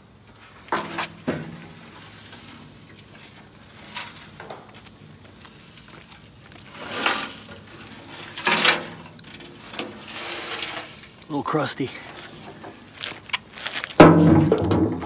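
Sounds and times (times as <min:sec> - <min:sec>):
sheet metal scraping and rattling: 0:06.7 - 0:11.2.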